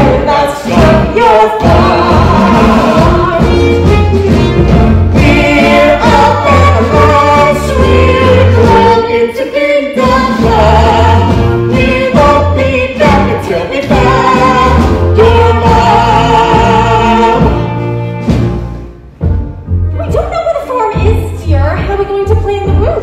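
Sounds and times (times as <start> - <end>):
ensemble singing in chorus: 0.0 - 18.1
instrumental accompaniment: 0.0 - 23.0.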